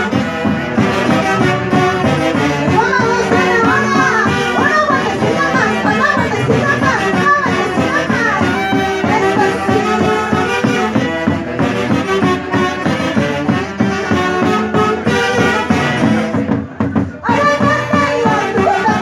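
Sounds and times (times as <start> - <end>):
live band with saxophones and brass: 0.0 - 19.0
steady drum beat: 0.0 - 19.0.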